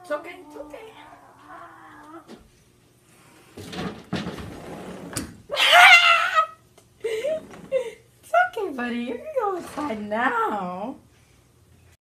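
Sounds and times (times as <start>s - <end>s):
objects scuffling and clattering: 3.4s - 5.2s
loud high wavering cry: 5.5s - 6.6s.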